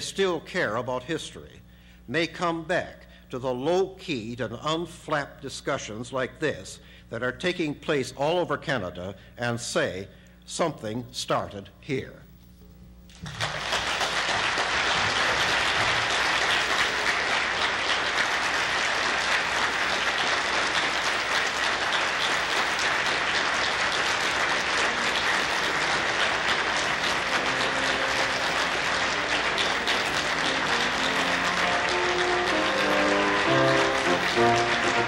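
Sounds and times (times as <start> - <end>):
audience clapping: 13.1 - 35.0
faint music: 14.8 - 35.0.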